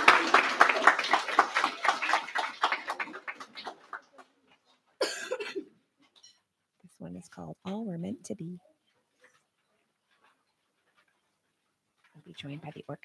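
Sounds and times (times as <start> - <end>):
crowd clapping: 0.0 - 4.5.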